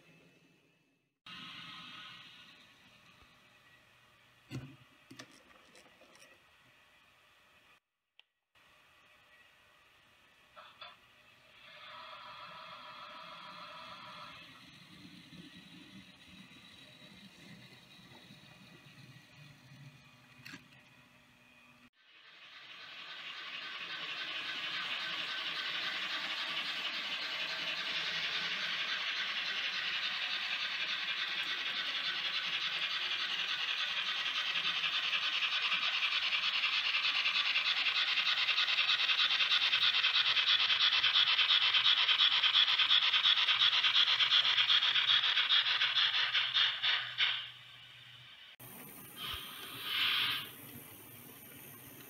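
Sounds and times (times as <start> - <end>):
model train wheels rattling on rails: 10.6 - 52.0.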